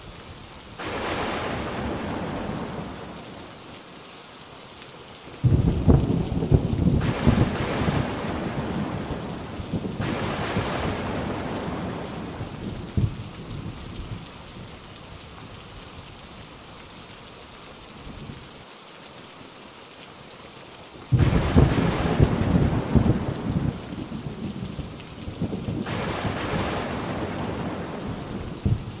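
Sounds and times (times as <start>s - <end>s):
steady rain: 0.0s - 29.0s
thunder rolling: 5.4s - 13.2s, 21.1s - 23.9s.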